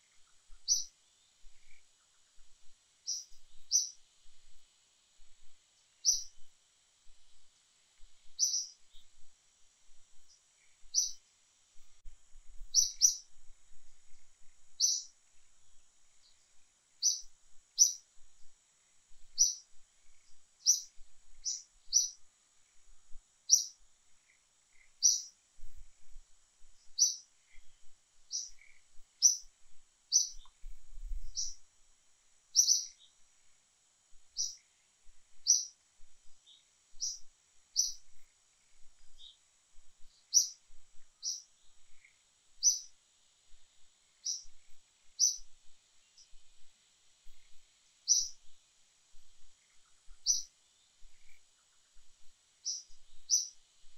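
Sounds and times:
bird chirping: 0.0 - 4.0, 6.0 - 6.5, 8.2 - 9.3, 10.1 - 11.2, 12.6 - 13.3, 14.4 - 15.2, 16.2 - 18.1, 19.3 - 22.8, 23.5 - 25.4, 26.8 - 31.6, 32.5 - 33.2, 34.3 - 34.7, 35.3 - 39.4, 40.0 - 43.0, 44.2 - 46.4, 47.3 - 48.6, 49.4 - 53.6
faint high-pitched hum: 0.0 - 53.9.

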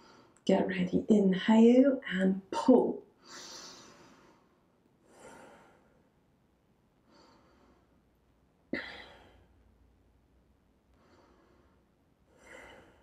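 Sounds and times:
person breathing: 3.2 - 6.1, 7.0 - 8.0, 10.9 - 13.0.

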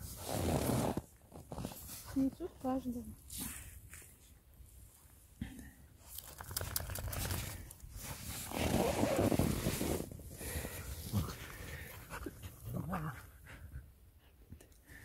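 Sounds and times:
dogs crunching through snow: 0.0 - 4.2, 6.6 - 11.9.

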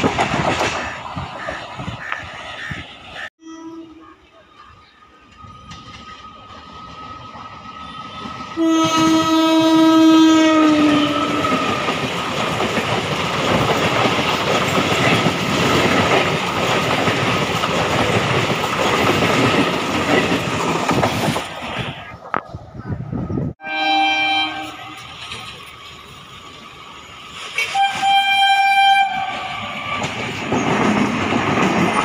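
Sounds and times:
train horn blast: 3.4 - 4.2, 7.8 - 11.8, 23.6 - 25.2, 27.6 - 30.1
train wheels rushing past: 5.0 - 22.1, 24.0 - 32.0.

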